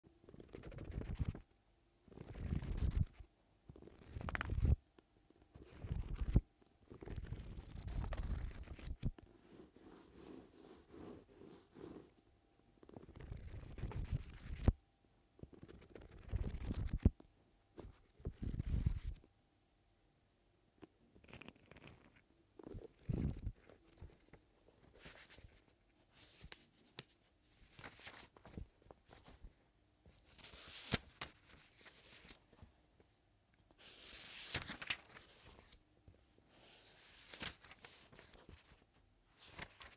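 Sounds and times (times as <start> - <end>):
book pages riffled and flipped: 0.4 - 1.4, 2.1 - 4.8, 5.5 - 12.2, 12.8 - 14.8, 15.4 - 17.2, 17.8 - 19.2, 21.3 - 32.7, 33.8 - 35.8, 36.5 - 39.9
book cover rubbing: 3.9 - 4.8, 5.6 - 12.2.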